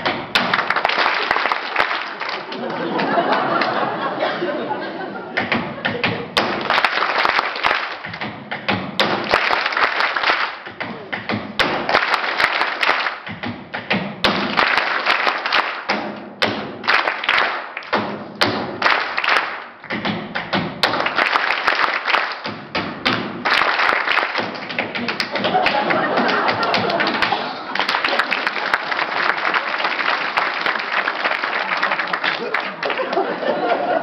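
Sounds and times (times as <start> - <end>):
hand clapping: 0.0 - 3.8, 5.4 - 33.9.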